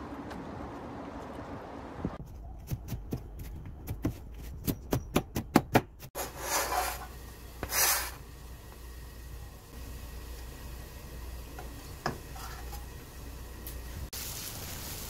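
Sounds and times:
knife blade scraping board: 6.2 - 8.2.

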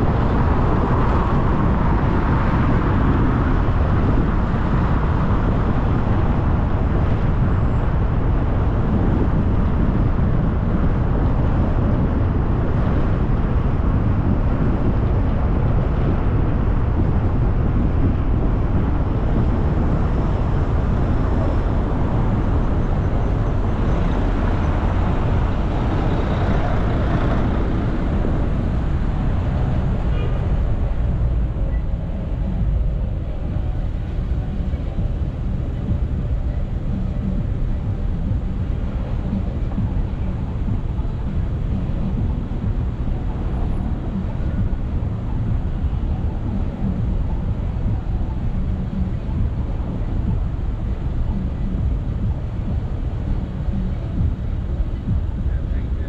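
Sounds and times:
car road and wind noise: 0.0 - 56.0
passing traffic: 0.0 - 56.0.

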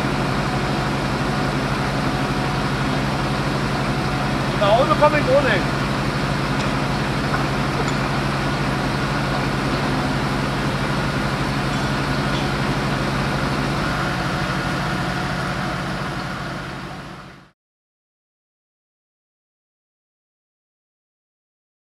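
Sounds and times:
engine running steadily: 0.0 - 17.6.

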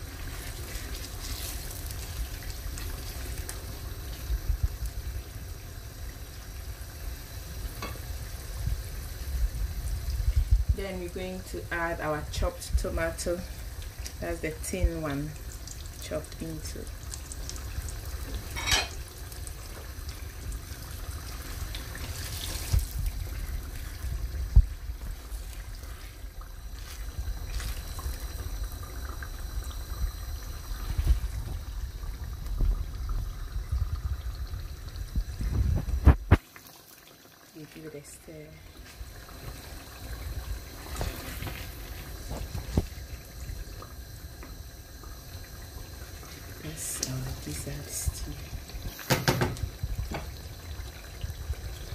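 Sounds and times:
stew squelching and sloshing: 0.0 - 4.3, 20.1 - 29.2.

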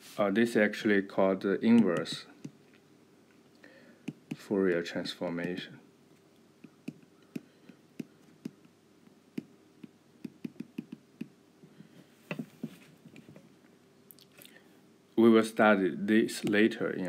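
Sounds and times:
stylus tapping on glass screen: 9.4 - 11.3.

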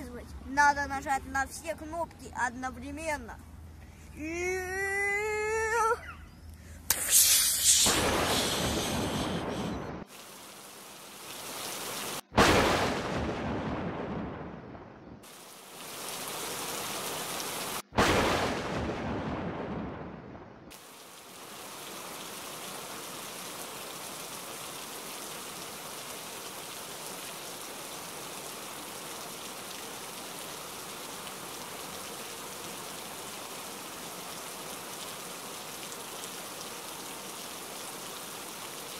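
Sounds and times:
heavy rain: 6.9 - 14.6, 15.2 - 38.9
thunderclap rumbling: 7.9 - 10.1, 12.4 - 15.2, 18.0 - 20.7.

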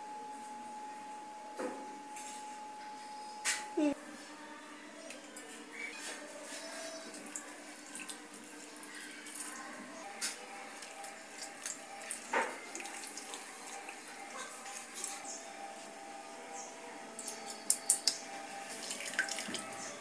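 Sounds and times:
water pouring into steel bowl: 10.8 - 14.0, 18.7 - 19.8.

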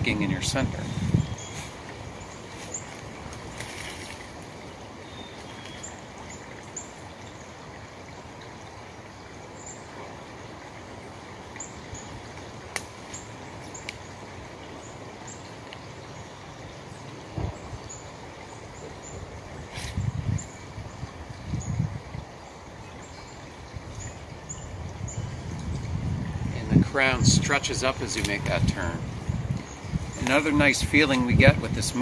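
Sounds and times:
small stream rushing: 0.0 - 32.0.

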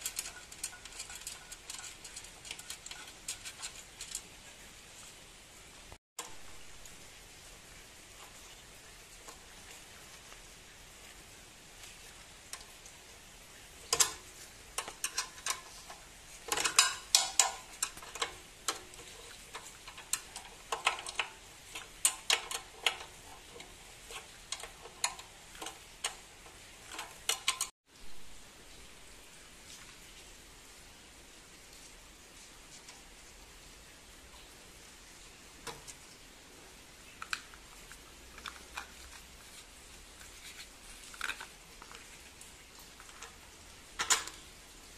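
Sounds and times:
sharp clicks and metallic clinks: 0.0 - 4.4, 13.9 - 27.8.

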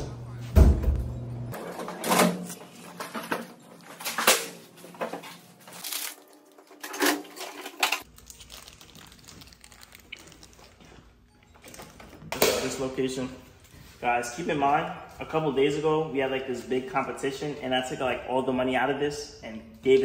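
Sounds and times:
snack packets rustling and clicking: 2.6 - 11.1.

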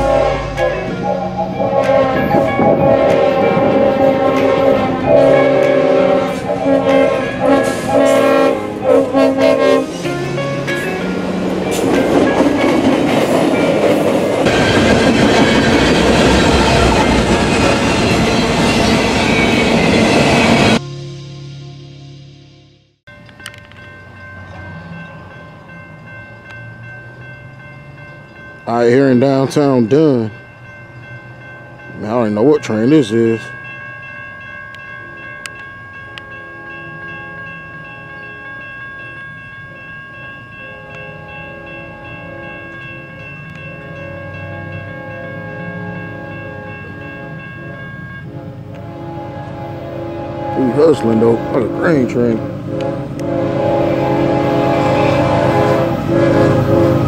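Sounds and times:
distant locomotive horn: 0.0 - 12.7, 40.6 - 57.0
freight train wheels rumbling: 0.0 - 20.9, 23.1 - 57.0
railroad crossing bell ringing: 0.0 - 21.7, 23.1 - 57.0.

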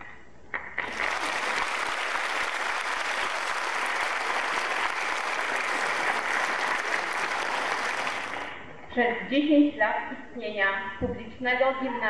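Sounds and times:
audience applauding: 0.8 - 8.7.

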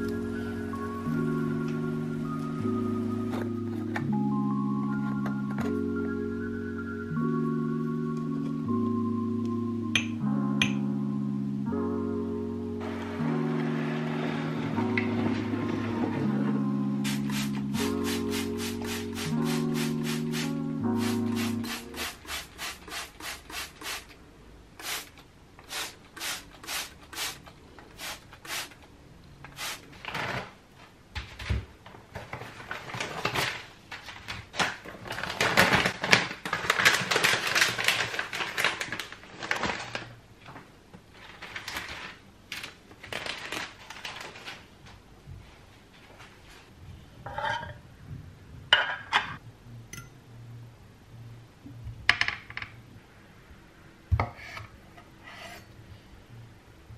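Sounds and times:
plastic bag rustling: 32.2 - 40.2, 41.0 - 44.8.

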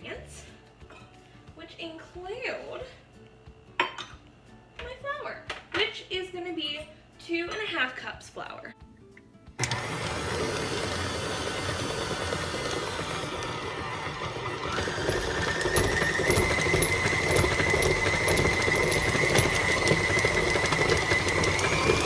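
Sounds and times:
stand mixer running: 9.6 - 22.0.

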